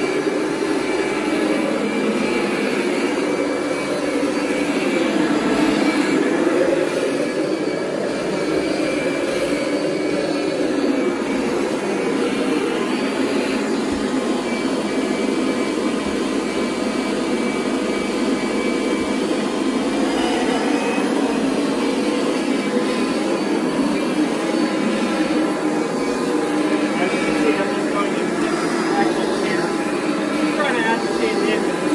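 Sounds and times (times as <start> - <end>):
vacuum cleaner running: 0.0 - 31.9.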